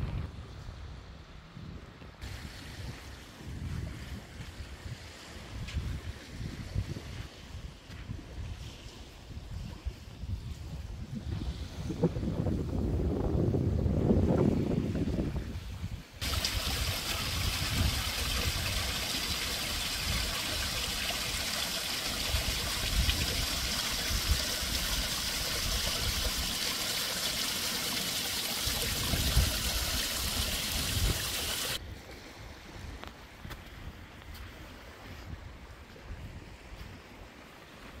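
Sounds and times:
wind rumbling on microphone: 0.0s - 26.7s, 28.6s - 38.0s
water trickling over stones: 16.2s - 31.8s.

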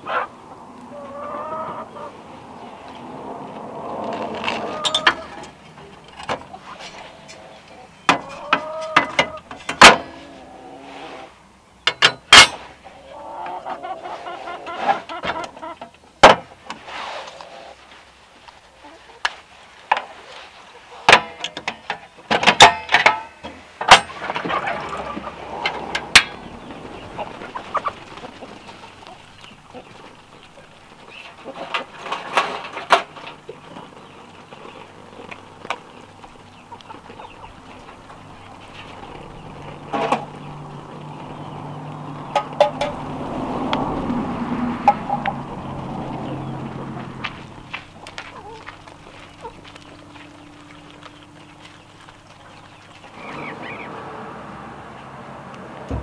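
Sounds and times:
chickens clucking: 0.0s - 11.4s, 12.3s - 16.0s, 18.7s - 21.4s, 23.1s - 56.0s.

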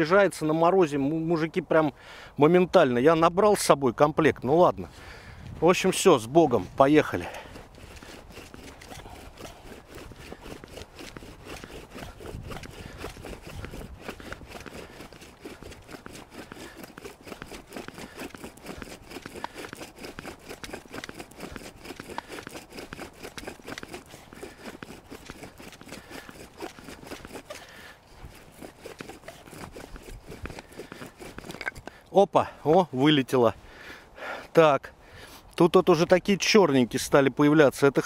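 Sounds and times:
bow drill rasping: 5.6s - 33.1s.

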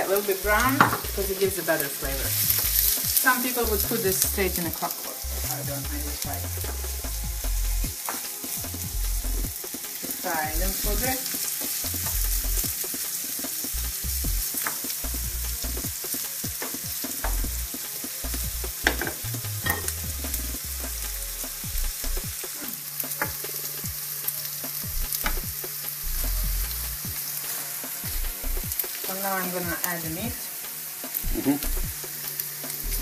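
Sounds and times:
food sizzling in a pan: 0.0s - 33.0s
sharp pops and crackles: 24.7s - 27.2s.

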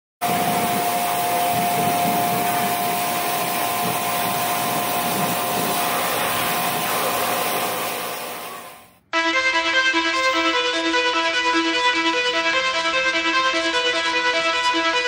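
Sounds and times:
pressure washer spraying metal: 0.2s - 8.9s.

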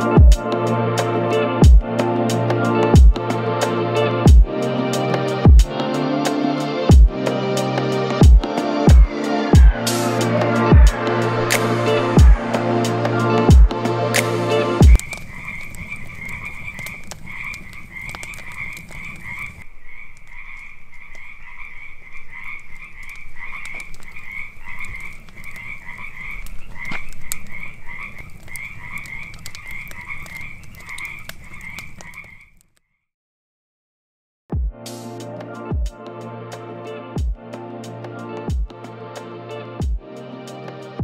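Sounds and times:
campfire crackling and popping: 0.0s - 32.8s
frogs croaking: 7.8s - 33.1s.

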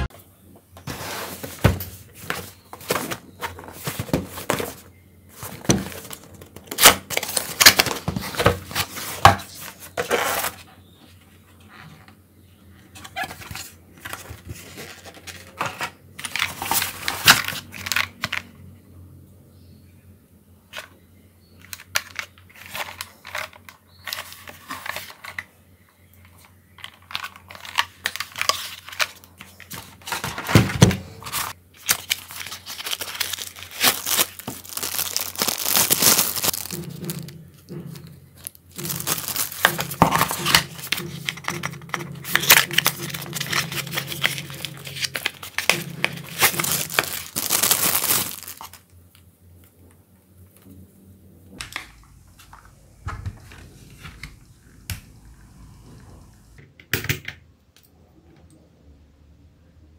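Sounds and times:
plastic bags crinkling: 2.2s - 10.6s, 31.3s - 37.3s, 38.0s - 48.9s.

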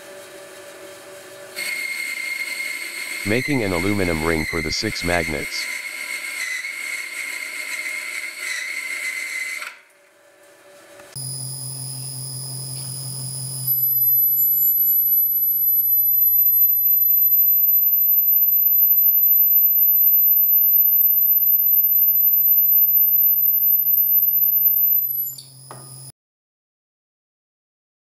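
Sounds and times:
milling machine whine: 11.2s - 25.3s.

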